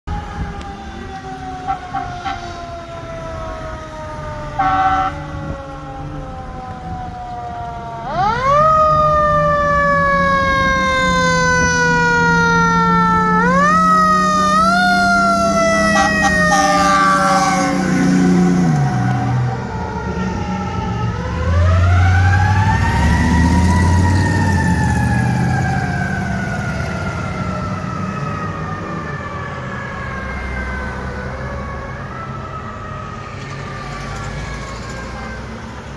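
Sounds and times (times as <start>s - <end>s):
diesel engine droning: 0.1s - 35.9s
fire engine siren: 0.1s - 35.9s
air horn blast: 1.7s - 2.6s, 4.6s - 5.3s, 15.8s - 18.2s.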